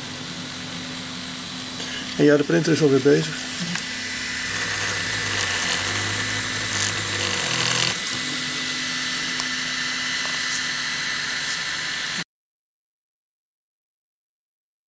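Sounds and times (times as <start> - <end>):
printer stepper motors humming: 3.8 - 10.5.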